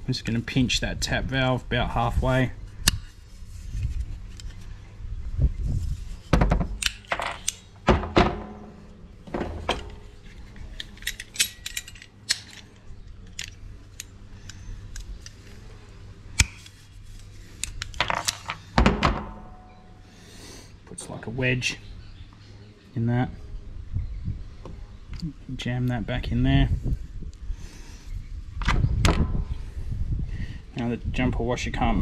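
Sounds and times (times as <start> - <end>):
pliers set down on wooden table: 6.4 - 10.1
hand tool clicks and rattles: 6.7 - 15.4.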